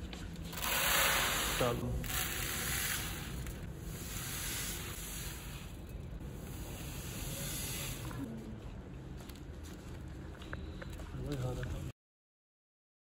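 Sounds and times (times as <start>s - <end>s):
sugar pouring into plastic tub: 0.6s - 5.4s.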